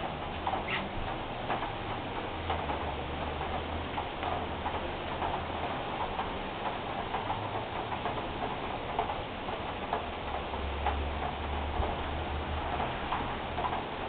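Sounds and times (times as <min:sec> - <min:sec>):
heavy rain falling: 0:00.0 - 0:14.0.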